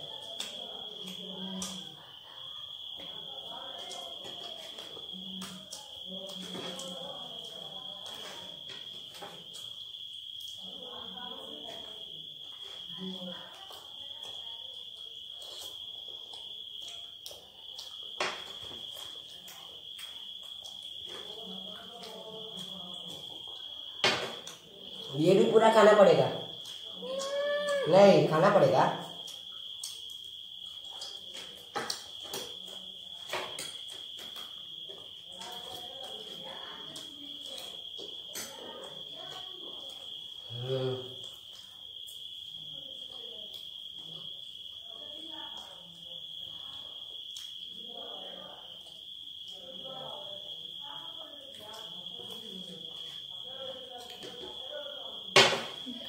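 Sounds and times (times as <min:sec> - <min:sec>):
cricket trilling: 0:00.0 - 0:56.0
eating clicks and rustles: 0:29.0 - 0:40.5.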